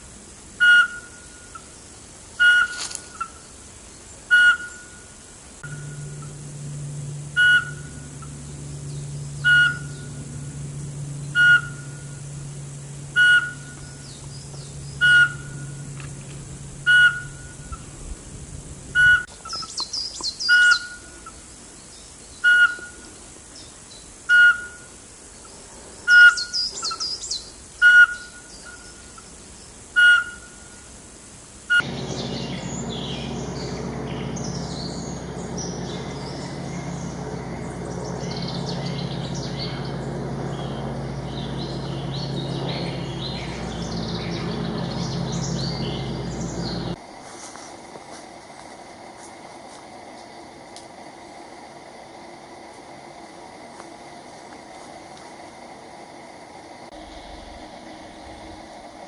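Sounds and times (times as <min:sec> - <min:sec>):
steady low hum: 0:00.0 - 0:59.0
owl whistled note: 0:00.6 - 0:01.6, 0:02.4 - 0:02.8, 0:04.3 - 0:05.0, 0:07.3 - 0:08.0, 0:09.4 - 0:10.1, 0:11.3 - 0:12.2, 0:13.2 - 0:14.0, 0:15.0 - 0:15.8, 0:16.8 - 0:17.8, 0:19.0 - 0:19.7, 0:22.4 - 0:23.0, 0:24.3 - 0:24.9, 0:27.8 - 0:28.8
high twittering: 0:31.7 - 0:47.0.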